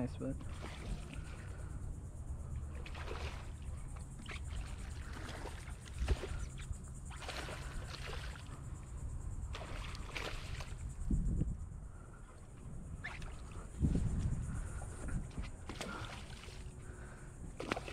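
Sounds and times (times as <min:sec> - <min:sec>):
wind rumbling on microphone: 0:00.0 - 0:17.9
fish splashing at water surface: 0:02.7 - 0:08.6, 0:09.5 - 0:10.9, 0:15.6 - 0:17.9
dull low thumps: 0:13.6 - 0:15.8.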